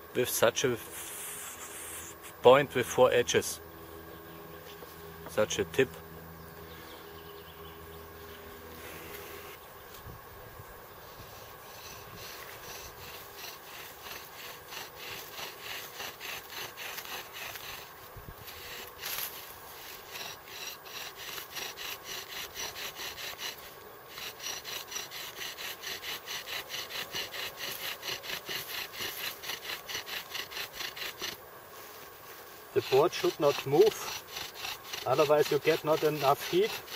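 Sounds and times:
bow drill rubbing and squeaking: 8.7s - 9.6s, 11.2s - 31.4s, 32.8s - 36.9s.

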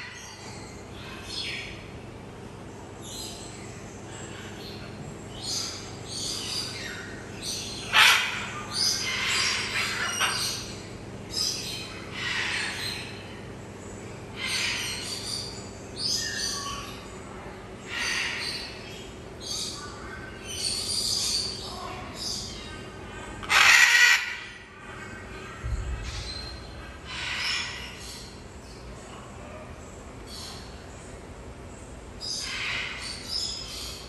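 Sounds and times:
parrots squawking: 7.9s - 10.7s, 12.0s - 13.1s, 23.2s - 24.7s.

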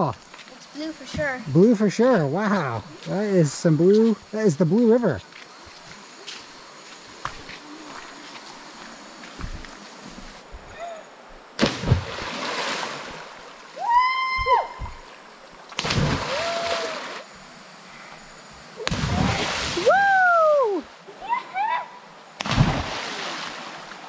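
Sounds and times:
bodies splashing into water: 11.6s - 13.8s, 15.7s - 17.3s, 18.8s - 20.2s, 22.4s - 24.0s
people whooping: 13.8s - 14.9s, 16.2s - 17.2s, 19.2s - 21.9s.

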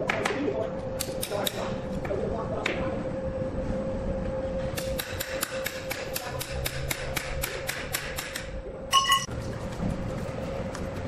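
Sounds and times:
steady hum: 0.0s - 11.0s
hammer striking rapidly: 4.8s - 8.5s.

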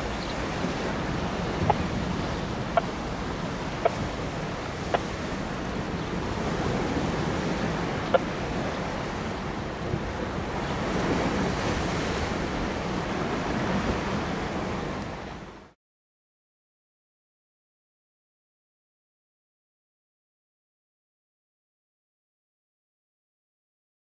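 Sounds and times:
wind on microphone: 0.0s - 15.7s
choppy river water: 0.0s - 15.8s.

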